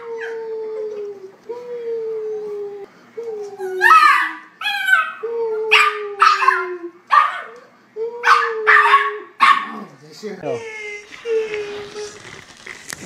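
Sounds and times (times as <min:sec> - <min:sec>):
puppy yipping: 0:08.2 - 0:09.8.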